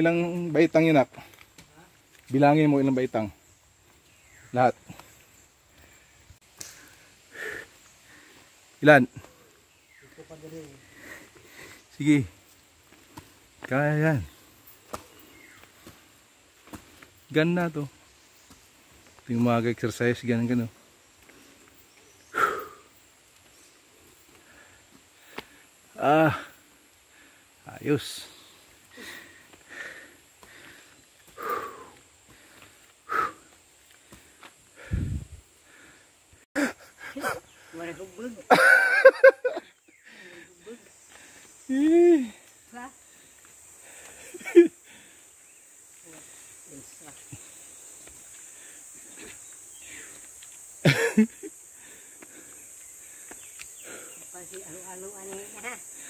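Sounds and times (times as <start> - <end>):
insects droning: 0.0 - 56.0
person breathing hard: 22.3 - 23.0, 28.5 - 37.7, 39.9 - 41.6, 43.0 - 45.6, 51.6 - 54.3.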